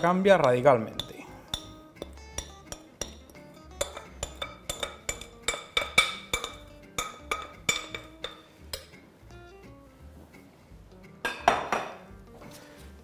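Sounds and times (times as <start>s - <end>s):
metal spoon clinking on glass bowl: 0.0s - 8.9s.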